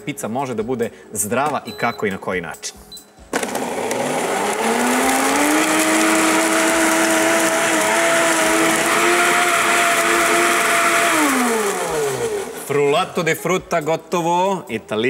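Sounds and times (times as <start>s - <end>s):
blender motor blending ice: 3.3s - 12.9s.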